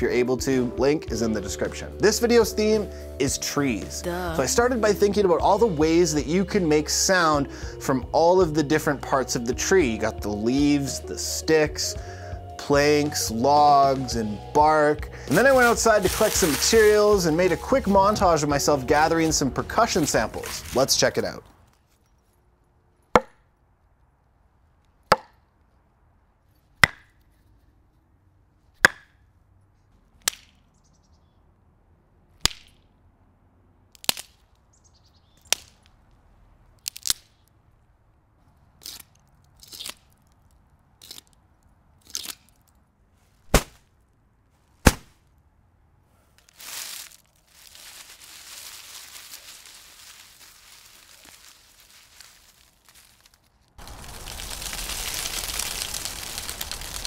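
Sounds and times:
dry leaves rustling: 14.8 - 22.2, 46.2 - 57.0
wood sticks knocking on stump: 23.2 - 23.4.

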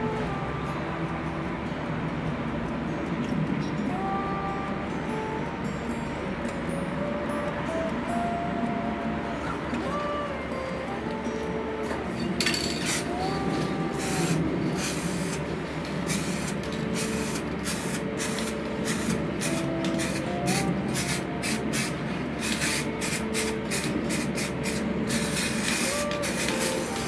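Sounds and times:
spray paint can hissing bursts: 12.4 - 27.0.

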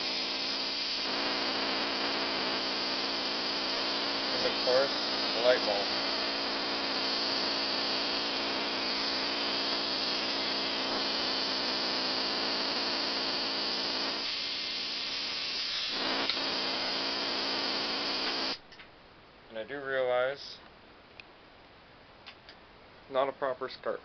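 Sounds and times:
tesla coil electrical buzz: 0.0 - 18.6.

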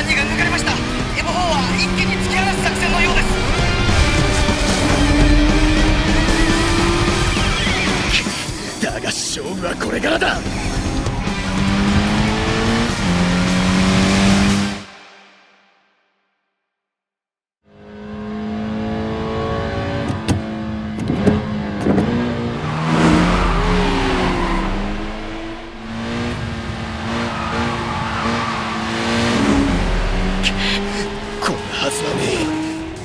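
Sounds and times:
racing car engines revving high: 0.0 - 14.9, 17.7 - 33.0
tyres squealing: 27.0 - 29.3.

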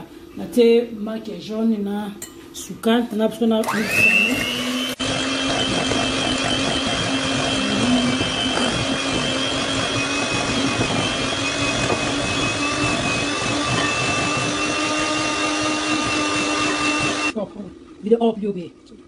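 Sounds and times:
electric mixer whining: 3.6 - 17.4.

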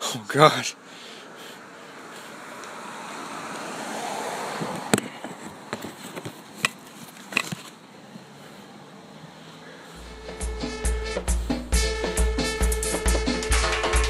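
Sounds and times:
phone handling rustle: 5.0 - 7.8.

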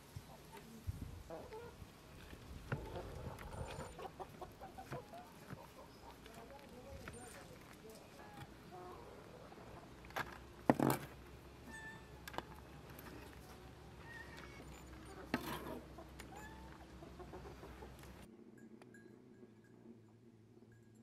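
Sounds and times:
chickens clucking: 0.2 - 10.1, 11.6 - 18.3.

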